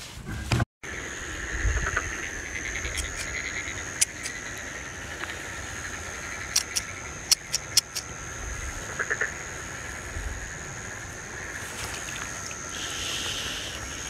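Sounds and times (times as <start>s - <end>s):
night insects chorus: 0.8s - 14.0s
sharp clicks: 4.0s - 4.4s, 6.5s - 8.1s.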